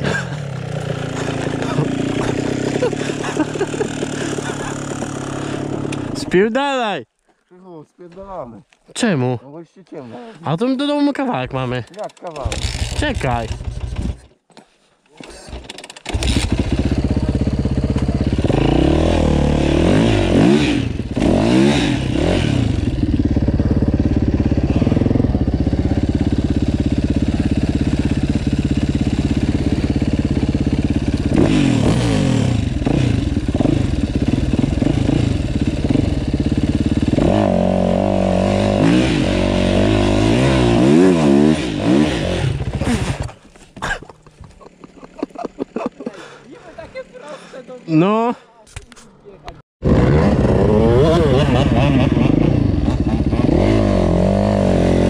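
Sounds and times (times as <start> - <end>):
dirt bike engine revving: 0.0 - 6.5, 12.4 - 14.3, 15.5 - 43.4, 49.8 - 55.0.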